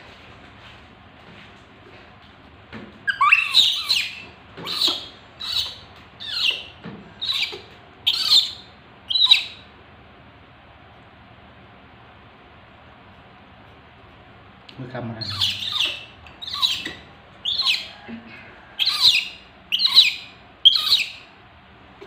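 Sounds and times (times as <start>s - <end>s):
baby monkey squealing: 3.1s - 9.6s, 15.2s - 18.0s, 18.8s - 21.3s.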